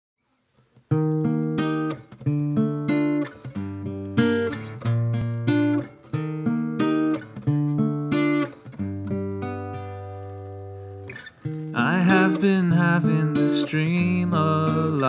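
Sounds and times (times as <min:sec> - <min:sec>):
acoustic guitar plucking chords: 0:00.8 - 0:15.0.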